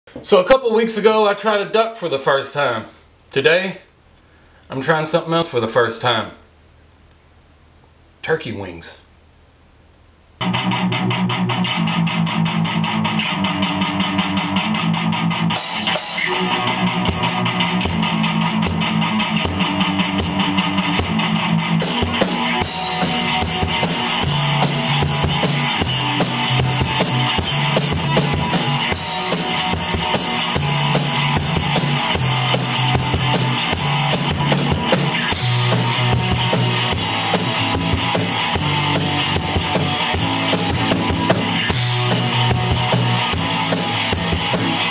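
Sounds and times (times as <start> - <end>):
rock music on electric guitar and drums: 10.4 - 44.9.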